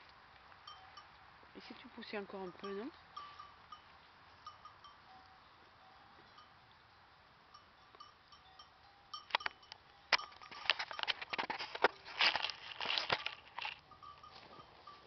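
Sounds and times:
dry leaves and twigs crackling: 0:09.1 - 0:15.0.

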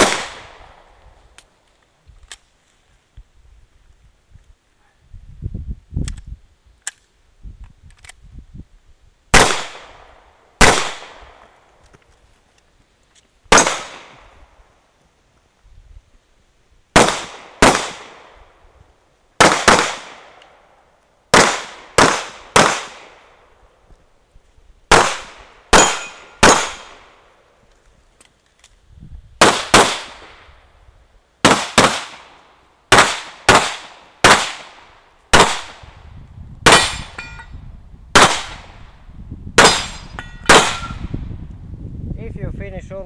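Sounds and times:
pistol shots echoing: 0:00.0 - 0:00.8, 0:09.4 - 0:10.0, 0:10.6 - 0:11.5, 0:13.5 - 0:14.2, 0:17.0 - 0:18.4, 0:19.4 - 0:20.4, 0:21.3 - 0:23.2, 0:24.9 - 0:27.1, 0:29.4 - 0:30.4, 0:31.4 - 0:35.8, 0:36.7 - 0:37.2, 0:38.2 - 0:38.7, 0:39.6 - 0:41.0.

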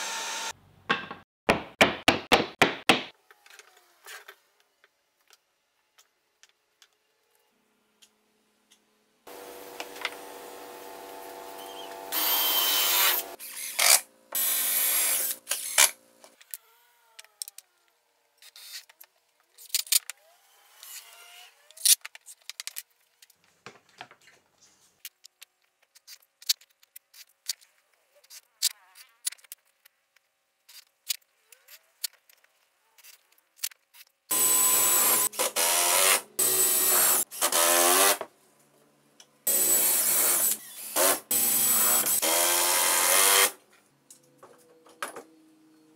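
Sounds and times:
cordless drill driving screws: 0:11.6 - 0:16.0, 0:34.3 - 0:38.2, 0:39.5 - 0:43.6.

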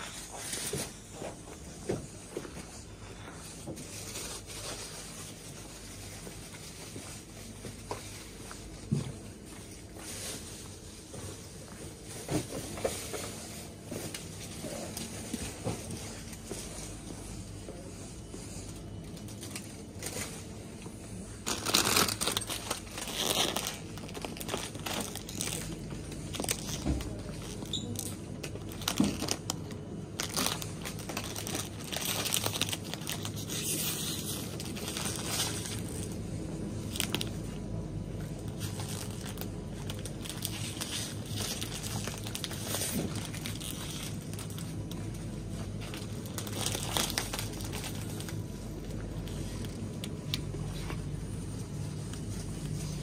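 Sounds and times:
plastic snack bags crinkling: 0:03.7 - 0:11.1, 0:18.7 - 0:53.0.

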